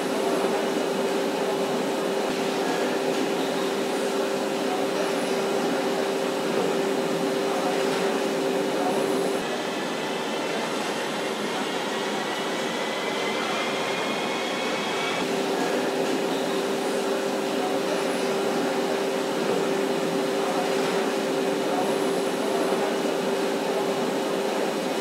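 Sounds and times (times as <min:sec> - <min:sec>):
factory machinery noise: 0:00.0 - 0:25.0.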